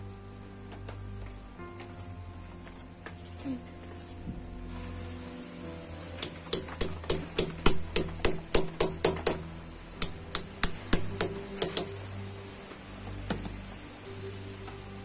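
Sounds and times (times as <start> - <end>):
hammer tapping metal bolts: 6.2 - 9.4, 10.0 - 12.0.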